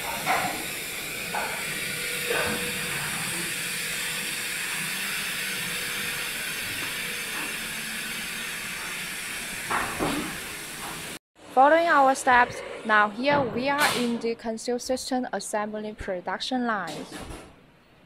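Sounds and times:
injection moulding machines running: 0:00.0 - 0:14.0.

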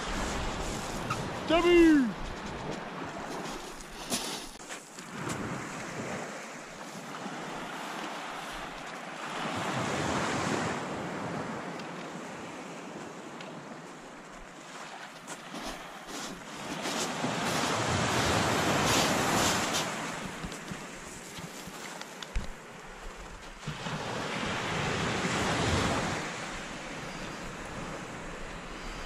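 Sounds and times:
surf washing onto shingle: 0:00.0 - 0:10.9, 0:14.8 - 0:26.8.

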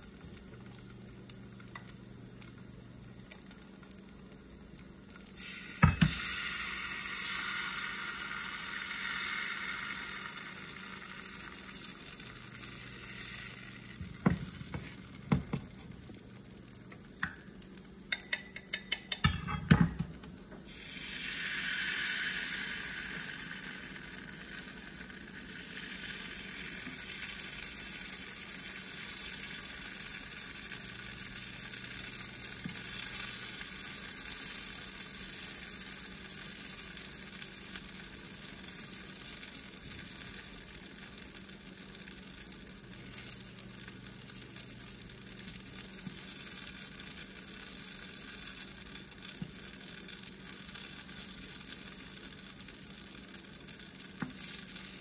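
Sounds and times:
batter sizzling in oil: 0:00.0 - 0:55.0
metal spoon knocking on pan: 0:05.8 - 0:06.2, 0:18.1 - 0:20.1.

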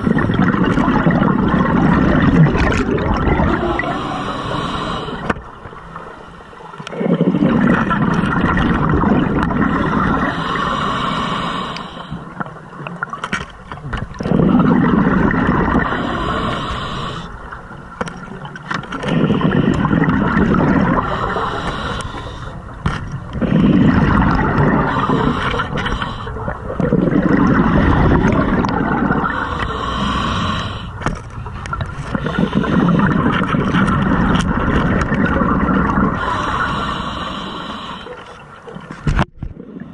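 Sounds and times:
exhaled bubbles rumbling: 0:00.0 - 0:39.9
regulator hissing on inhale: 0:03.8 - 0:05.3, 0:09.7 - 0:12.4, 0:15.8 - 0:17.4, 0:21.0 - 0:22.7, 0:24.8 - 0:26.6, 0:29.2 - 0:31.0, 0:36.2 - 0:38.4.

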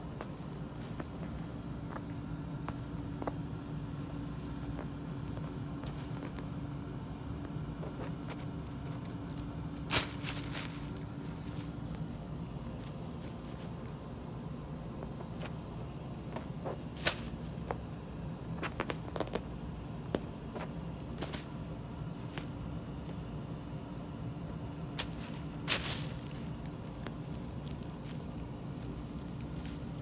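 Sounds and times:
steady low hum: 0:00.0 - 0:30.0
tissue paper crinkling: 0:07.9 - 0:14.0, 0:25.0 - 0:30.0.

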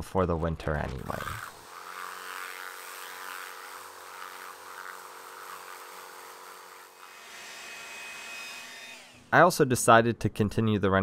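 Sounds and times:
pressure washer motor hum: 0:01.0 - 0:09.3.

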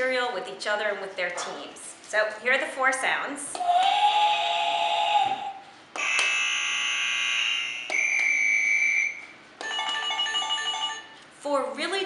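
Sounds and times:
electronic buzzer tones: 0:03.8 - 0:11.1.

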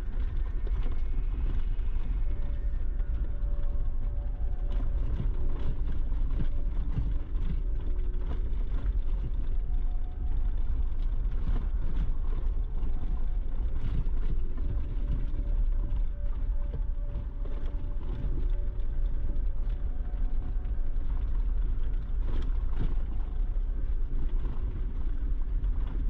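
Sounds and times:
gravel clicks and rattles: 0:00.0 - 0:26.0
vehicle engine and tyres rumbling: 0:00.0 - 0:26.0.

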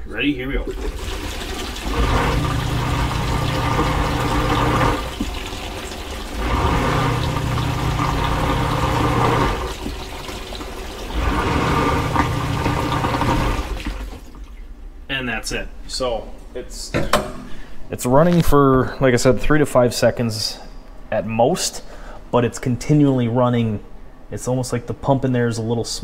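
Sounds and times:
draining water: 0:00.5 - 0:14.7
drain pump motor humming: 0:00.6 - 0:14.6.

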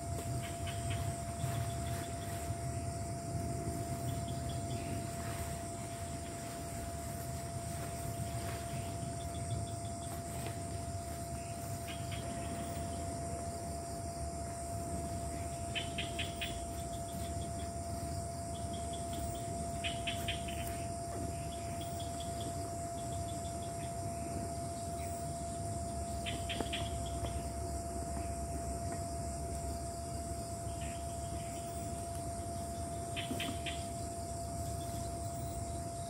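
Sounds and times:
constant low hum: 0:00.0 - 0:36.0
crickets buzzing: 0:00.0 - 0:36.0
rapid chirping trills: 0:15.1 - 0:24.3.

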